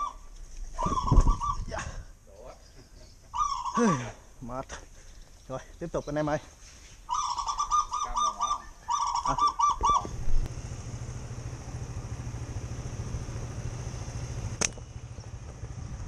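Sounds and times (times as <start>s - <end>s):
small motorbike engine: 9.6s - 16.0s
slingshot snap: 14.6s - 14.9s.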